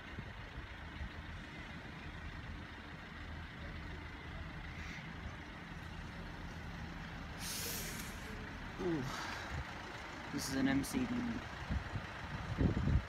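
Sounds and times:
vehicle engines idling: 0:00.0 - 0:13.0
brief hiss: 0:07.4 - 0:08.3.

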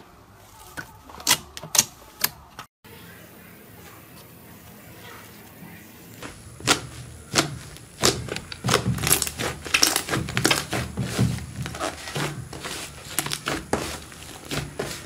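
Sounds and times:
hands kneading slime squelching: 0:06.1 - 0:15.0.

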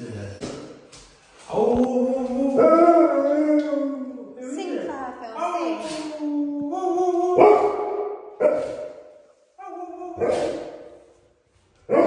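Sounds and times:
dog howling woo sounds: 0:02.0 - 0:04.0
dog barking: 0:07.4 - 0:09.2, 0:10.1 - 0:11.1.

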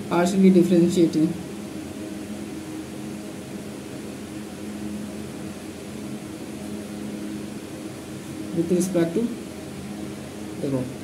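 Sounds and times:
room machinery hum: 0:00.0 - 0:11.0.

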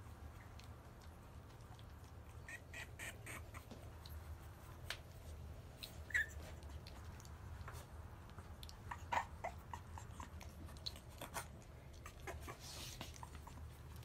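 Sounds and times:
low steady hum: 0:00.0 - 0:14.0
puppies squeaking: 0:02.1 - 0:04.1, 0:05.8 - 0:07.2, 0:08.4 - 0:14.0.

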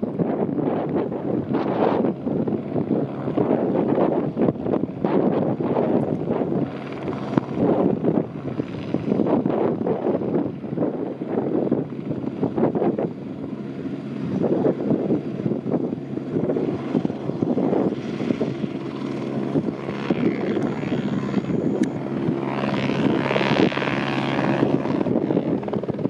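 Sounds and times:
helicopter rotor throbbing: 0:00.0 - 0:26.0
helicopter turbine whine: 0:00.0 - 0:26.0.

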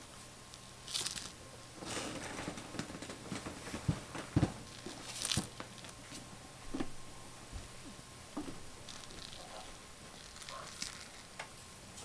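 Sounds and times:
dull thumps: 0:02.4 - 0:05.7.

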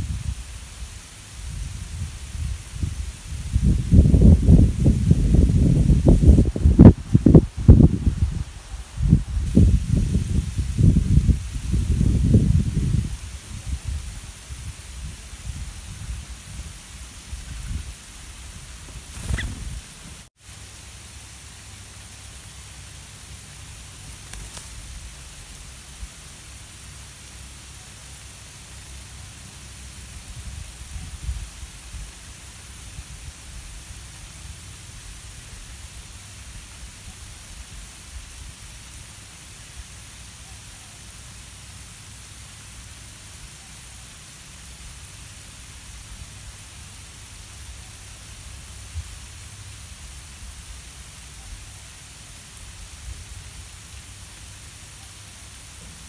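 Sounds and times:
wind rumble on microphone: 0:00.0 - 0:20.3, 0:30.2 - 0:32.1
outdoor background hiss: 0:00.0 - 0:56.0.

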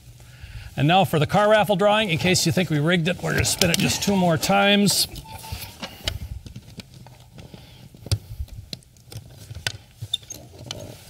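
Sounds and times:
tickets tumbling and rattling: 0:02.0 - 0:06.0
raffle drum spinning: 0:03.2 - 0:06.0.

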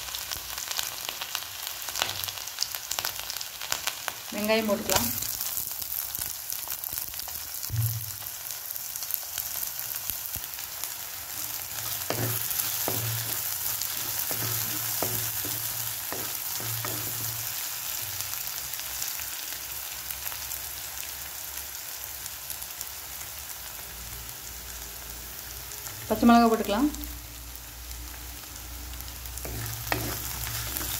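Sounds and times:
onion sizzling in hot oil: 0:00.0 - 0:30.9
wooden spatula knocking pot: 0:11.9 - 0:17.4, 0:29.5 - 0:30.9.

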